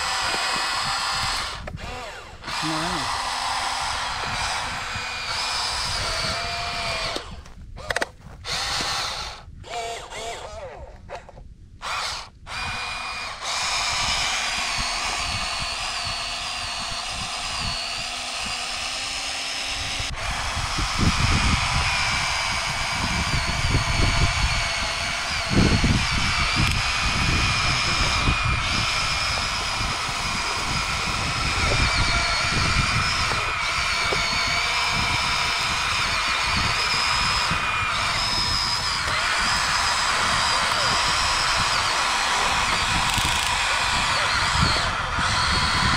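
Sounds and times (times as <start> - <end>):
low rumbling: 0.0 - 45.9
small electric motors whining: 0.0 - 45.9
sharp click: 7.1 - 8.9.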